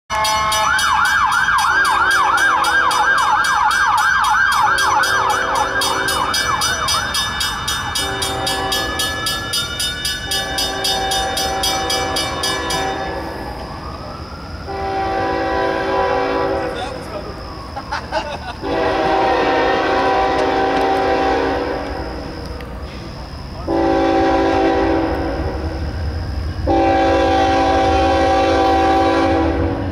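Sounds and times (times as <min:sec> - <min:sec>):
crossing bells ringing: 0:00.1 - 0:29.9
emergency siren yelping and wailing: 0:00.6 - 0:09.4, 0:11.5 - 0:26.1
train horn blasts: 0:08.0 - 0:09.3, 0:10.3 - 0:13.6, 0:14.7 - 0:17.1, 0:18.6 - 0:22.6, 0:23.7 - 0:25.9, 0:26.6 - 0:29.9.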